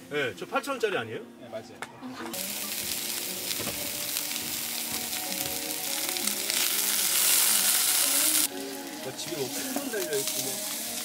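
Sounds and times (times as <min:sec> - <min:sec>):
pork sizzling in a frying pan: 0:02.3 - 0:11.0.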